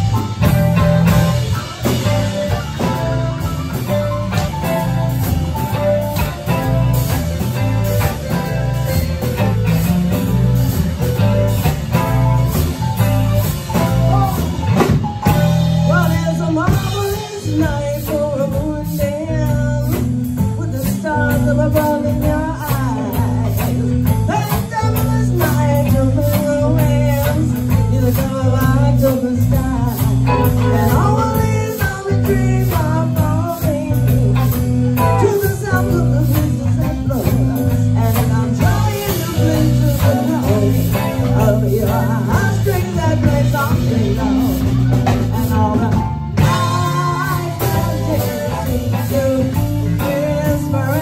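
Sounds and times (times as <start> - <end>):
drum beat: 0.0 - 18.2, 37.1 - 51.0
electric guitar: 0.0 - 51.0
heavy bass line: 0.0 - 51.0
keyboards: 0.0 - 51.0
lead vocals: 0.0 - 51.0.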